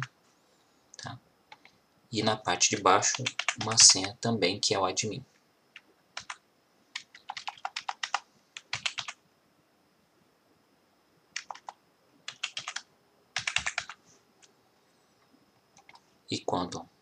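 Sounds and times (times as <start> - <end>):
keyboard typing: 2.7 - 4.2, 5.8 - 9.2, 11.4 - 14.0, 15.8 - 16.0.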